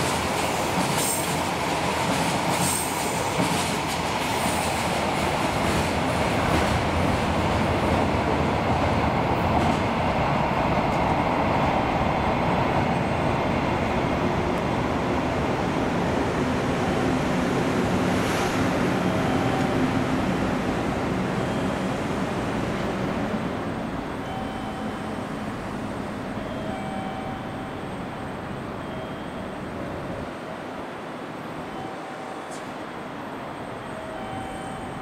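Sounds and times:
train wheels rumbling on rails: 0.0s - 35.0s.

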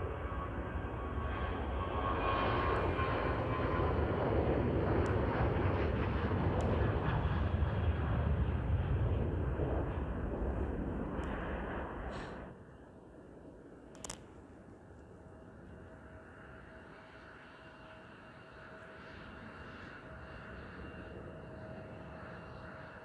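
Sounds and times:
jet engines at takeoff: 0.0s - 23.0s.

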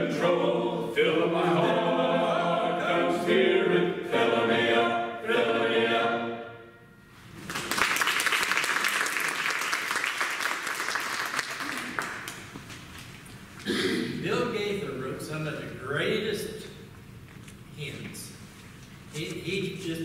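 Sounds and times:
men's choir singing: 0.0s - 6.8s
audience applauding: 7.4s - 12.6s.

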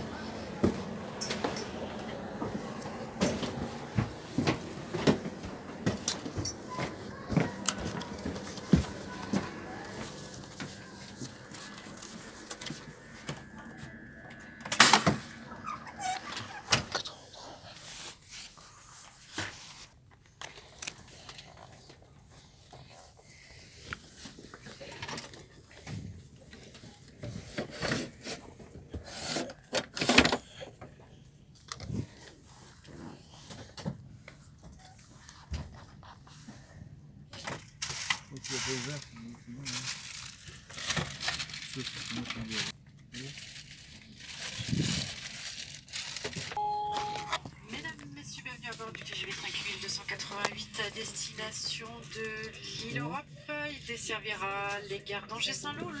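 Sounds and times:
steady low hum: 0.0s - 17.7s
footsteps on stairs: 0.6s - 13.5s.

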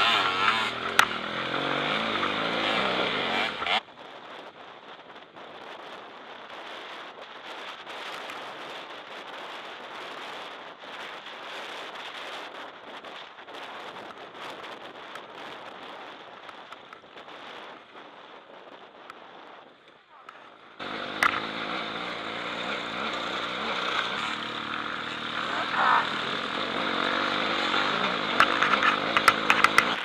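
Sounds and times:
dirt track noise: 0.0s - 30.0s
ticks and rattles: 22.8s - 30.0s.

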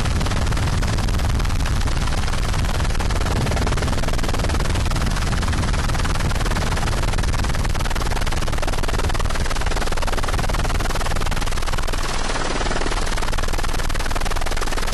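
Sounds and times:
dense rushing noise: 0.0s - 7.6s
helicopter rotor chop: 0.0s - 14.9s.

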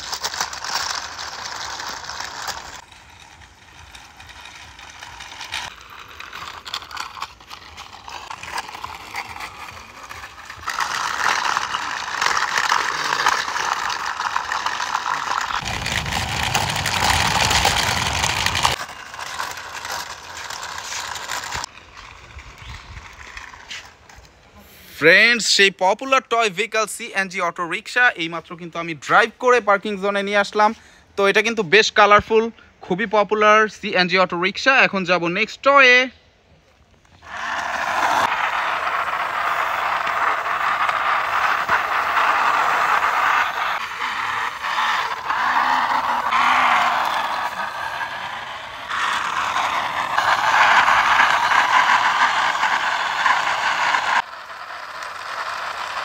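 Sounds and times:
plastic toy wheels rattling on concrete: 0.0s - 24.6s, 37.0s - 56.0s.

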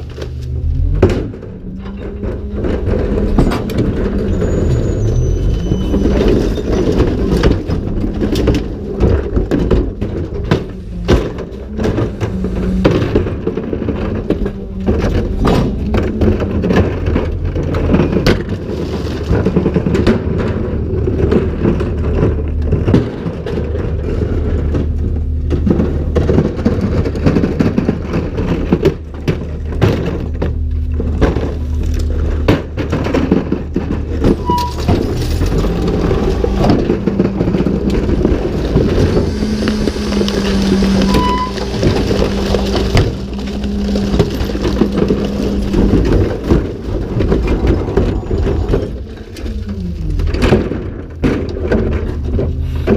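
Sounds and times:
hydraulic tipper hum: 0.0s - 52.9s
plastic carts banging and clattering: 0.0s - 52.9s
diesel engine idling: 23.8s - 52.9s.

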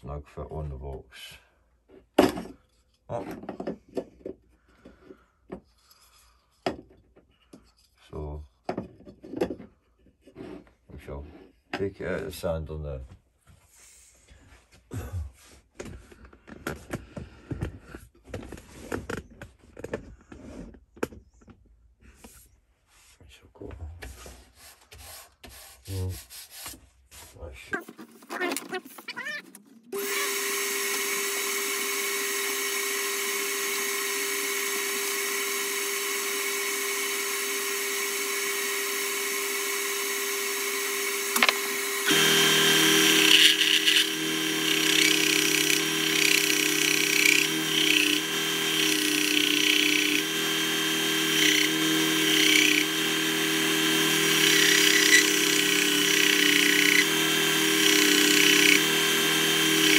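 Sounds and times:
belt sander humming: 30.0s - 59.9s
wood being sanded: 30.0s - 59.9s.

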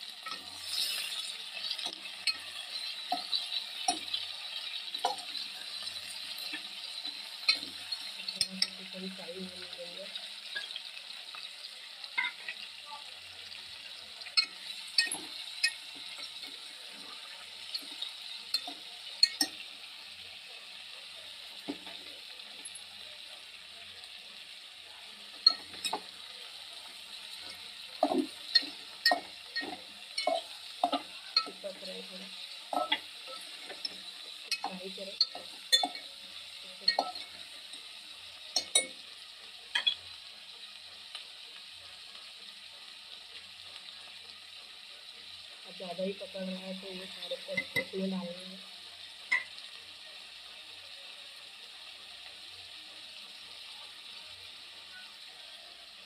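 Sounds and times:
meat sizzling in oil: 0.0s - 56.0s
spoon scraping metal pot: 0.2s - 6.5s.

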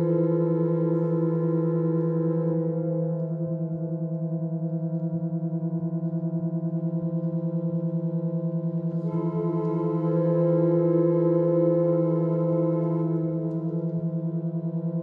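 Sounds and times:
pump organ drone chord: 9.0s - 15.0s.

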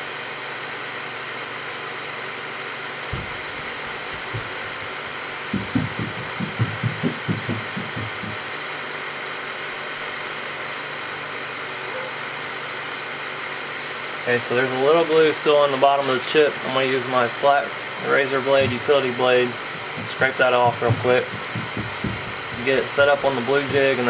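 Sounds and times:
soft low knocks: 3.1s - 8.4s, 18.5s - 24.0s
machine whirring: 18.0s - 24.0s.

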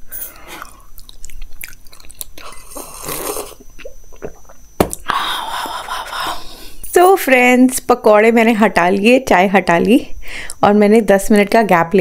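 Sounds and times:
chewing: 0.4s - 4.6s
sipping hot tea: 2.1s - 5.9s.

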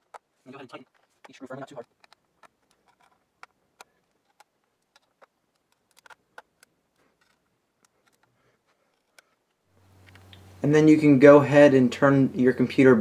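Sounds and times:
screwdriver clicking on screws: 0.0s - 9.4s.

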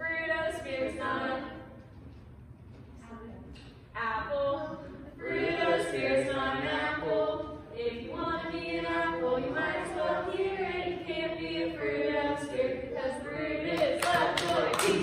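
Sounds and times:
group singing a worship song: 0.5s - 1.8s, 4.8s - 15.0s.

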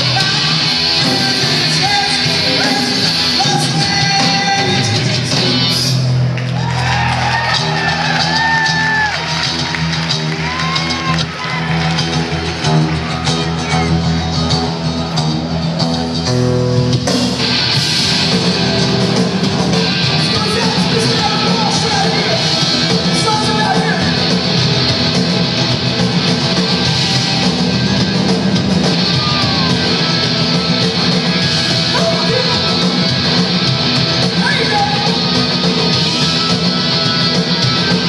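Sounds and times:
punk band playing live: 0.0s - 38.0s
shouted vocals: 28.9s - 30.2s, 34.3s - 35.3s.

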